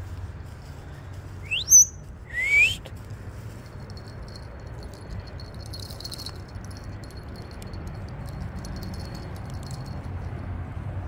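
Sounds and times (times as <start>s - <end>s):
parrot rising whistles: 1.4s - 2.9s.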